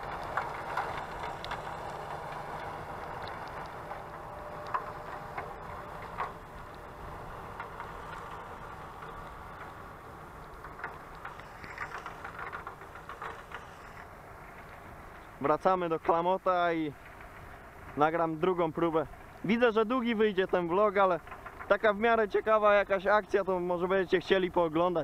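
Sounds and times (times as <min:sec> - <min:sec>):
tractor engine running: 0:00.0 - 0:25.0
light ticks: 0:00.1 - 0:06.9.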